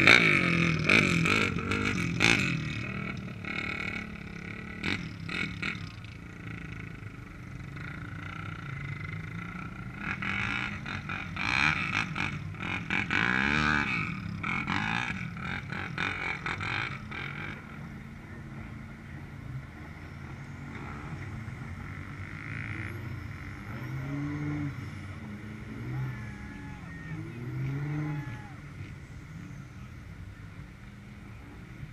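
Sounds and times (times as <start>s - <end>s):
distant truck engines revving: 0.0s - 31.9s.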